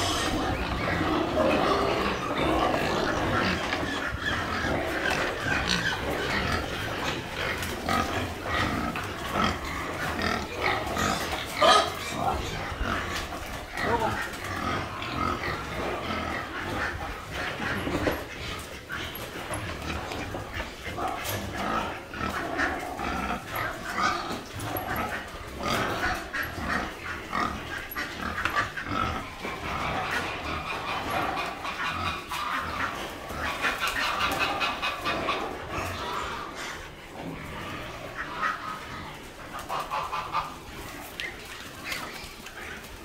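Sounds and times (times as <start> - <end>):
high-pitched animal call: 0.0 - 6.7
pigs grunting and chewing: 0.0 - 43.0.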